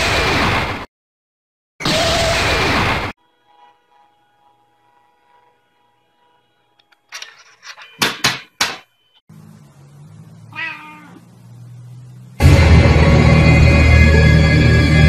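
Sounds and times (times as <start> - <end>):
low hum: 9.3 - 15.0
cat meowing: 10.5 - 11.3
loud music: 12.4 - 15.0.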